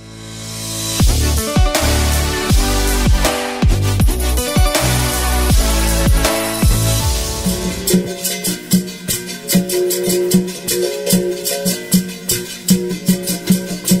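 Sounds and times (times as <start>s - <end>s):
plucked string instrument rhythm: 1.0s - 14.0s
shaker: 7.5s - 14.0s.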